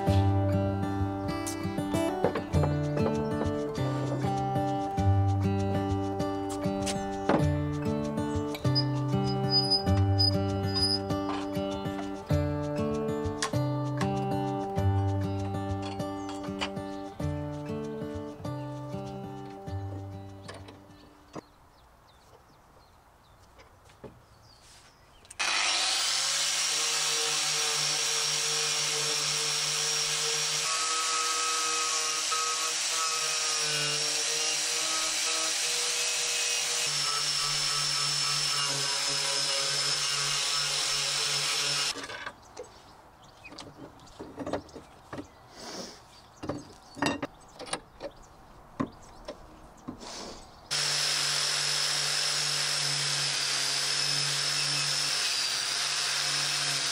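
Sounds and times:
angle grinder with wire brush: 25.4s - 42.2s, 50.0s - 56.9s.

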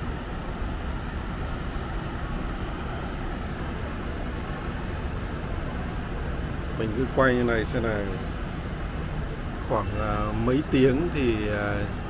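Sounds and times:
distant road traffic rumble: 0.0s - 12.0s.

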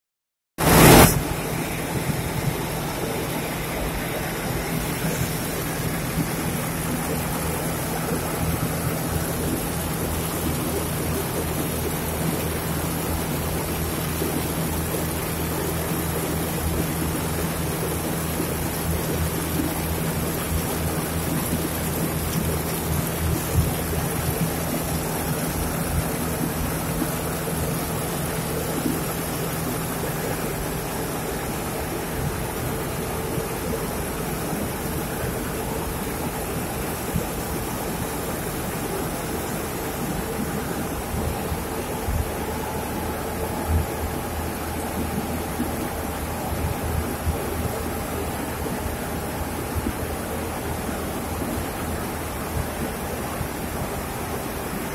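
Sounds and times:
machine rushing noise: 0.6s - 9.8s.

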